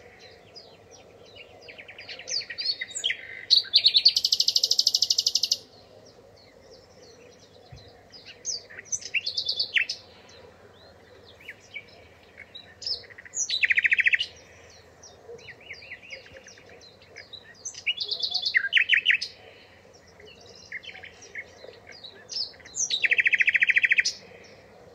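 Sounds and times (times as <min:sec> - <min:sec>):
songbirds chirping: 0:00.0 - 0:24.9.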